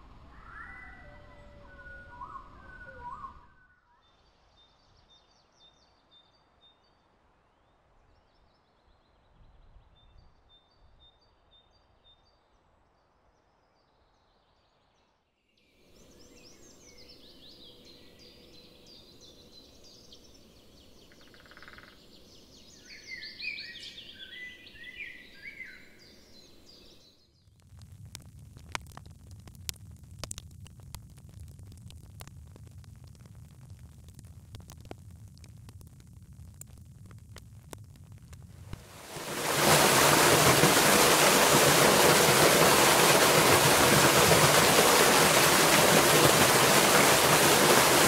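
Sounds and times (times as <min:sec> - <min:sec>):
birds chirping and trilling: 0:00.2 - 0:03.6, 0:16.1 - 0:27.2.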